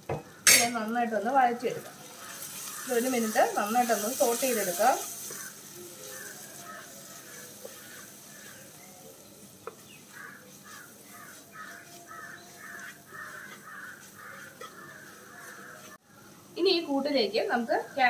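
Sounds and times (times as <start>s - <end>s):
faint stirring in a pan: 0.3s - 18.0s
crows cawing: 2.1s - 3.4s, 5.1s - 8.8s, 10.0s - 16.0s.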